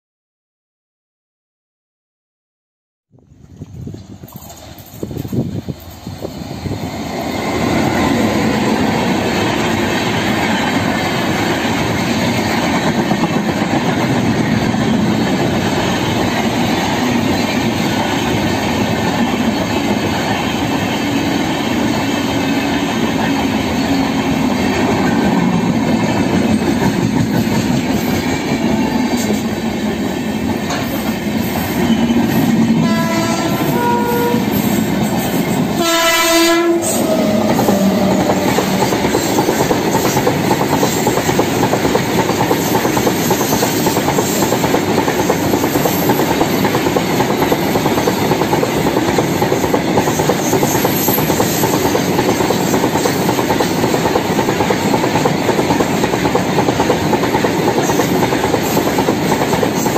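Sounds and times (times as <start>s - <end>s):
passenger train passing: 3.3s - 59.9s
freight train running by: 3.4s - 59.9s
locomotive horn: 32.8s - 34.7s, 35.8s - 38.5s.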